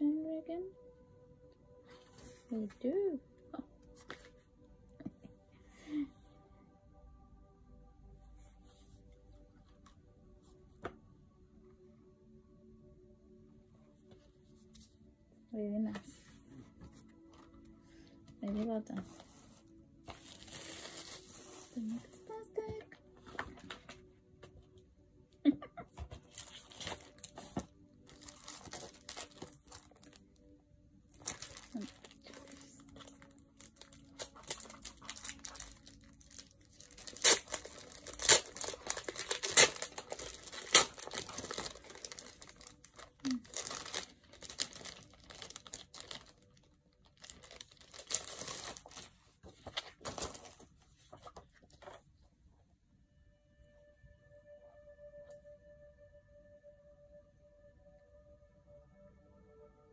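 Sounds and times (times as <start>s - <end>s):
paper and packaging rustling: 16.0s - 24.1s, 26.0s - 30.3s, 31.1s - 52.1s.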